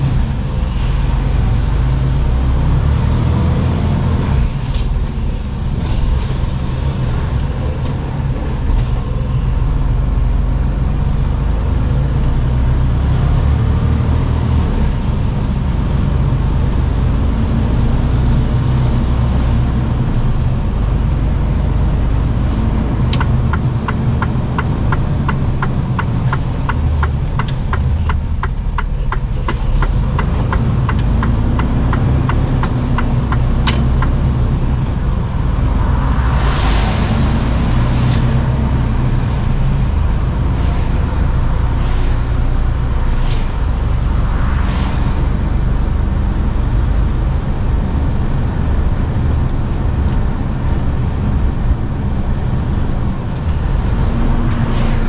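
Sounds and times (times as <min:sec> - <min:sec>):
truck diesel engine rumble: 0:00.0 - 0:55.0
turn signal click and ticking: 0:23.0 - 0:35.0.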